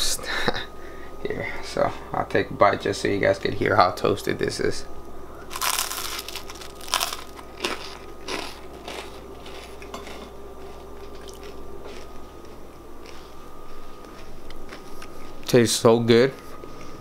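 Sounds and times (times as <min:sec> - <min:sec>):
crunchy bread bites: 0:05.5 - 0:12.2
chewing crunches: 0:05.5 - 0:13.3.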